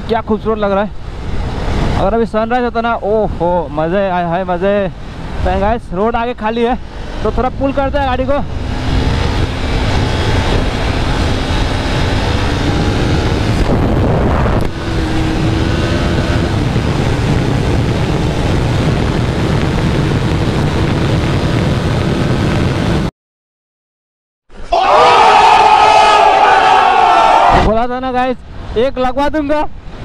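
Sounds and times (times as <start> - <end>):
wind rush on microphone: 0.0 - 23.1, 26.2 - 30.0
motorcycle engine accelerating: 6.8 - 23.1.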